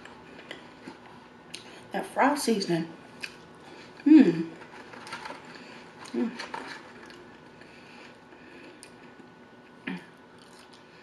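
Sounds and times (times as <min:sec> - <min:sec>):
soft chewing: 0:00.0 - 0:01.8, 0:03.1 - 0:11.0
person humming: 0:04.0 - 0:04.5.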